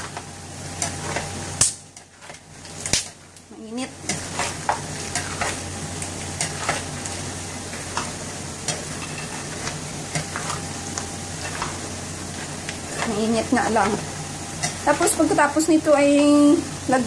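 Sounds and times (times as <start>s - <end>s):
nuts rattling in pan: 0.8s - 15.7s
utensil scraping through nuts: 4.0s - 15.4s.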